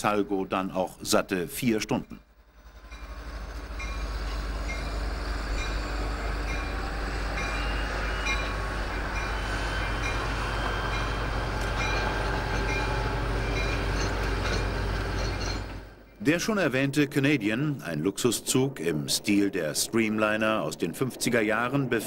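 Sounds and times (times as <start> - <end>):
train rumbling on rails: 0.0 - 22.0.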